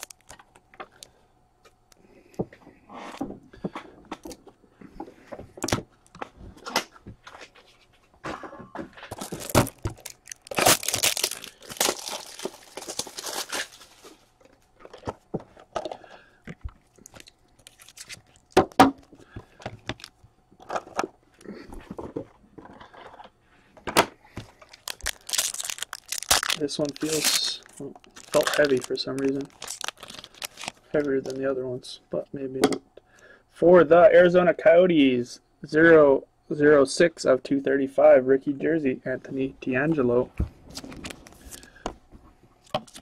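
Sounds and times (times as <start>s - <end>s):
foil wrappers crinkling and tearing: 0.0s - 0.5s, 9.1s - 15.0s, 16.9s - 18.7s, 19.8s - 20.2s, 24.5s - 31.4s.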